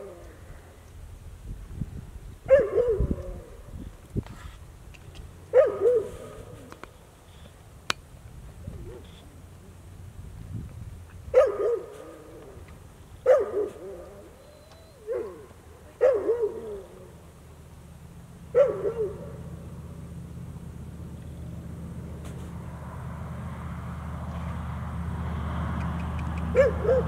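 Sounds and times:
low steady rumble: 0.0 - 27.0
dog barking: 2.5 - 3.1, 5.5 - 6.4, 11.3 - 12.1, 13.2 - 14.0, 15.0 - 16.8, 18.5 - 19.3, 26.5 - 27.0.

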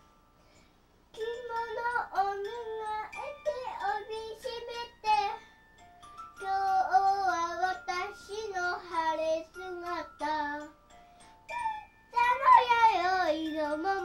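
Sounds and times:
young girl singing: 1.1 - 5.5, 6.4 - 10.8, 11.5 - 14.0
faint high tones: 10.6 - 13.9.

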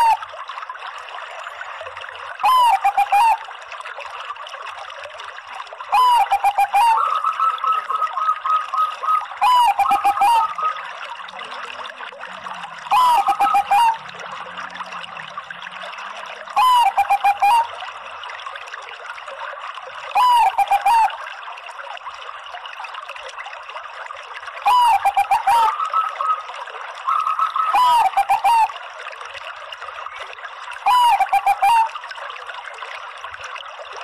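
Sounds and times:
trickling water: 0.0 - 34.0
dove cooing: 2.4 - 3.4, 5.9 - 10.8, 12.9 - 14.0, 16.6 - 17.6, 20.2 - 21.1, 24.7 - 26.4, 27.1 - 28.7, 30.9 - 31.9.

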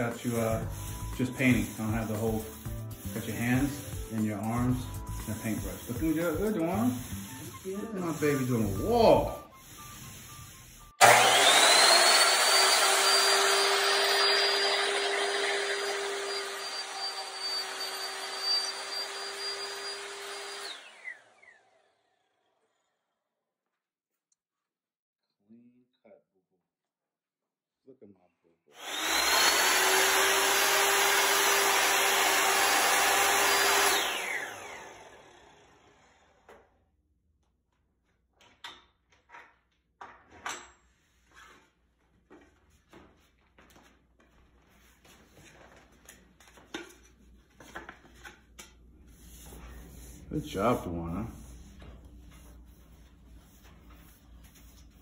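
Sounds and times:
saw cutting wood: 0.0 - 10.0, 11.0 - 21.8, 28.8 - 36.5
miter saw motor whine: 11.0 - 21.6, 32.5 - 35.6.

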